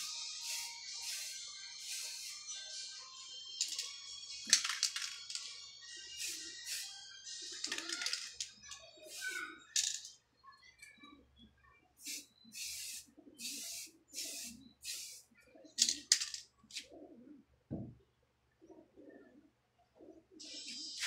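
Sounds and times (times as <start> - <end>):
spray paint can hissing: 0.0 - 2.5, 6.2 - 6.9, 12.0 - 15.2, 15.8 - 16.3
birds cooing: 12.1 - 21.0.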